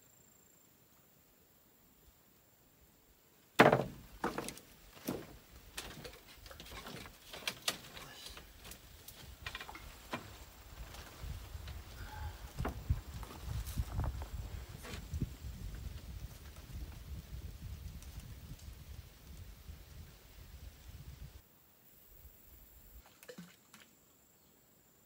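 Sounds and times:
feet knocking on bamboo floor: 3.6s - 7.0s
bamboo slats creaking: 3.6s - 15.1s.

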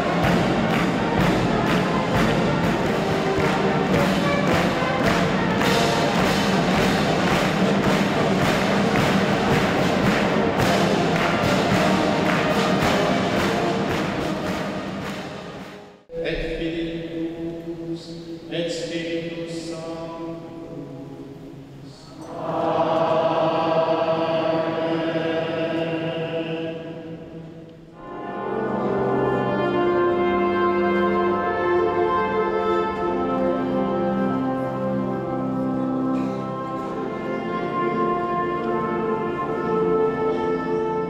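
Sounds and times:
brass band playing: 0.0s - 18.9s, 21.6s - 41.0s
choir singing held chord: 22.2s - 29.2s.

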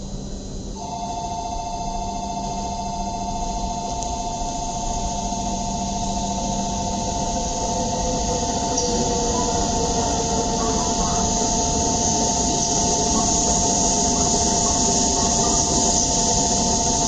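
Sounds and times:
high two-note whine: 0.8s - 9.7s
train rumble: 3.4s - 17.0s.

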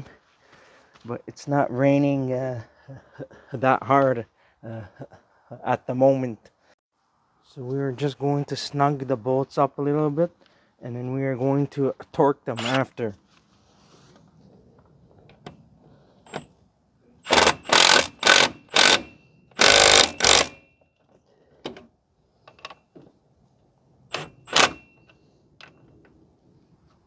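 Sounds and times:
power wrench bursts: 12.6s - 12.9s, 17.2s - 20.7s, 24.1s - 25.0s.

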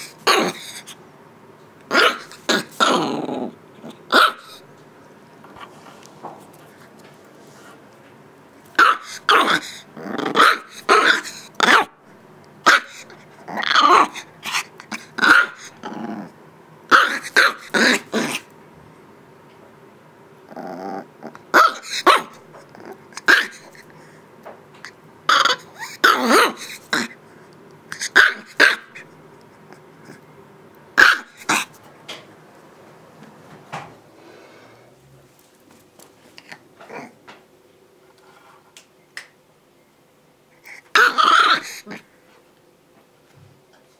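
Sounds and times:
puppy growling: 0.0s - 1.0s, 1.9s - 4.7s, 8.8s - 11.9s, 12.6s - 18.5s, 20.5s - 23.9s, 25.3s - 27.2s, 31.0s - 31.8s, 36.4s - 37.3s, 40.6s - 42.1s
puppy yapping: 1.9s - 3.2s, 4.1s - 4.6s, 8.8s - 11.9s, 12.6s - 14.6s, 15.2s - 15.8s, 16.9s - 18.4s, 21.5s - 22.4s, 23.2s - 23.7s, 25.3s - 27.1s, 28.0s - 29.0s, 31.0s - 31.7s, 40.9s - 42.0s.

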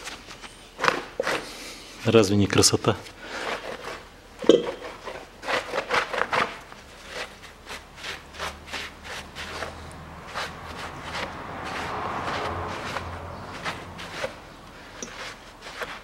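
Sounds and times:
gloved hand scrubbing metal: 3.4s - 16.0s.

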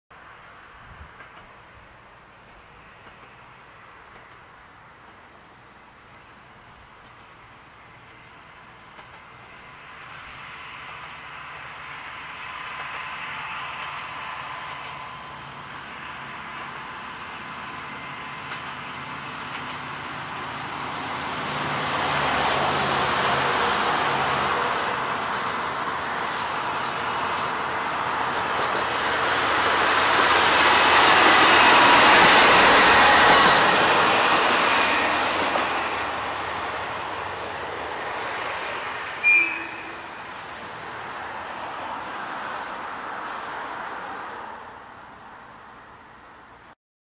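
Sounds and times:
diesel railcar passing: 0.1s - 46.8s
brief sharp tone: 39.2s - 40.0s.

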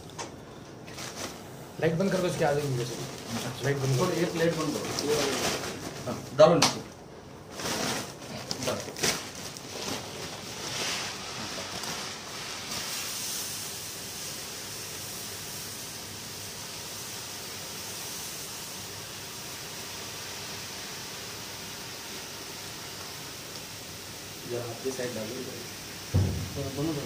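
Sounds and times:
sack rustling and knocking: 26.2s - 27.0s.

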